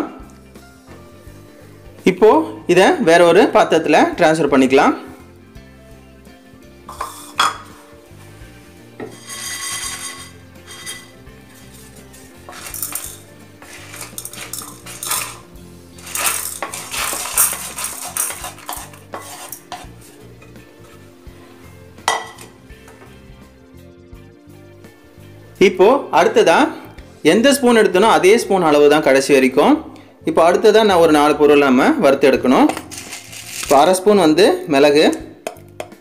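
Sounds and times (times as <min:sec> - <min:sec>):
spatula scraping a pan: 0:06.9 - 0:08.0, 0:09.0 - 0:21.6, 0:32.9 - 0:33.8
seeds rattling: 0:09.1 - 0:19.8, 0:32.8 - 0:33.8
pan and spatula knocks: 0:22.1 - 0:22.4.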